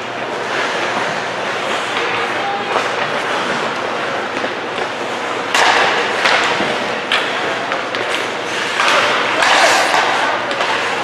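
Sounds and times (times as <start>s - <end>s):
ice rink din: 0.0s - 11.0s
puck and sticks knocking on boards: 0.6s - 11.0s.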